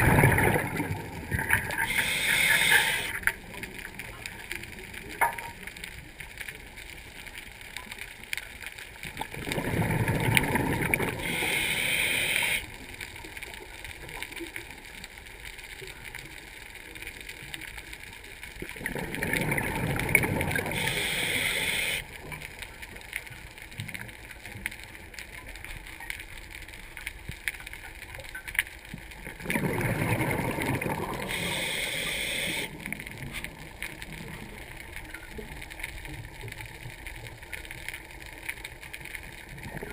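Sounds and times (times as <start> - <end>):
diver breathing through regulator: 1.7 - 3.2, 11.2 - 12.7, 20.7 - 22.0, 31.1 - 32.7.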